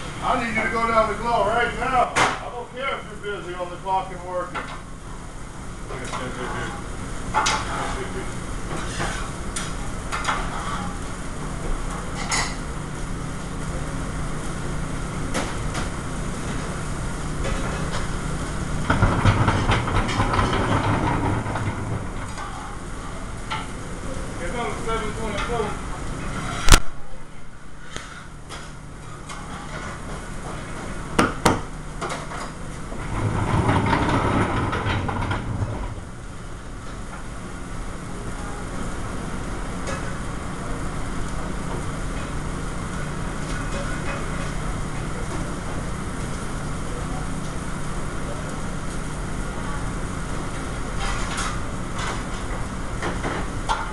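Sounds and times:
exhaust hood drone: 0.0s - 53.9s
steady hum: 0.0s - 53.9s
pans and utensils clattering: 12.1s - 12.7s, 18.8s - 22.8s, 32.0s - 36.0s, 50.9s - 53.9s.

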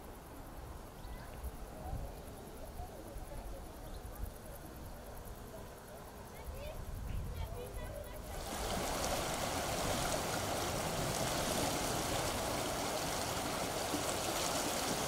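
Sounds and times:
river flowing over stones: 8.2s - 15.0s.

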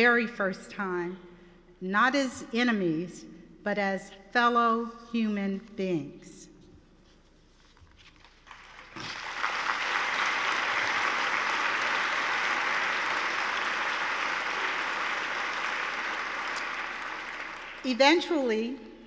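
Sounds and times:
audience applauding: 8.4s - 17.9s.

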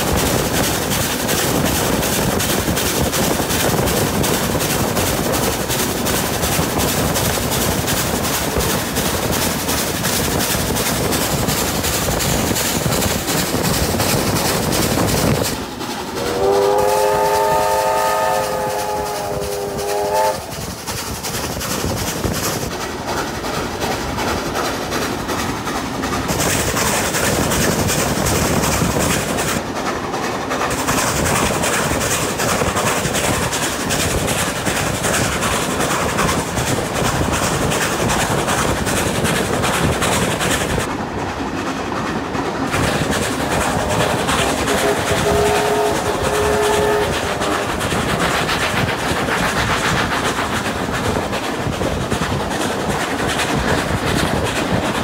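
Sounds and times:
train wheels on rails: 0.0s - 55.0s
steam locomotive whistle: 16.2s - 20.6s, 44.7s - 47.8s.

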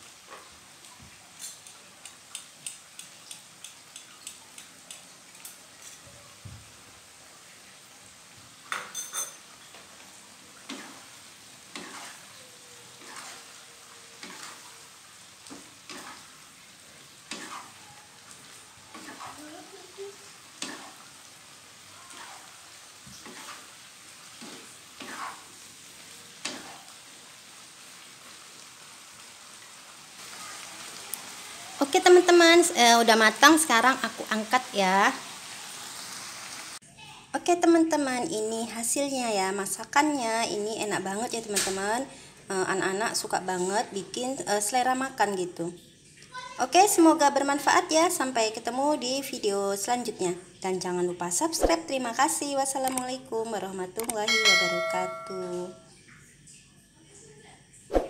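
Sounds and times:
sauce sizzling: 0.0s - 36.8s, 54.2s - 56.0s
spatula scraping and tapping wok: 1.4s - 6.0s, 11.7s - 12.2s, 15.5s - 16.3s, 17.3s - 17.8s, 18.9s - 19.4s, 20.6s - 21.0s, 24.3s - 25.5s, 26.4s - 26.9s.

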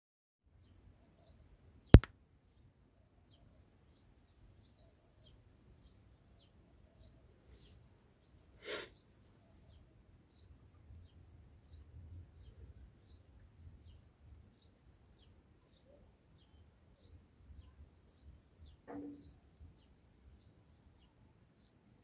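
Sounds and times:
bird chirping: 9.7s - 21.8s.

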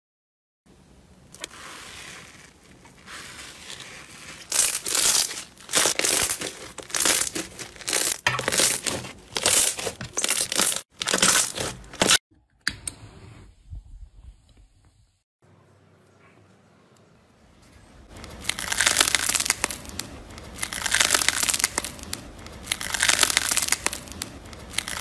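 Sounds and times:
slime crackling and crunching: 1.4s - 12.2s, 18.1s - 25.0s.

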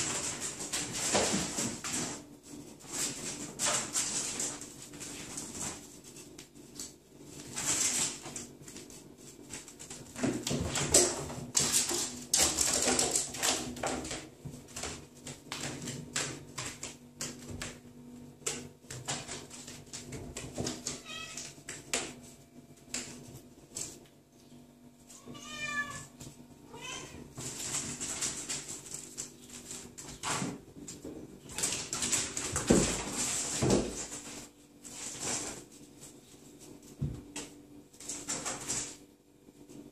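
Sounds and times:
cats meowing: 20.8s - 21.5s, 25.1s - 27.4s.

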